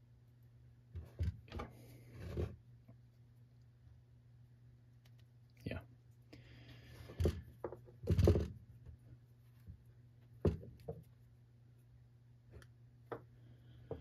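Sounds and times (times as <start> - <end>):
scrape: 1.6 - 2.6.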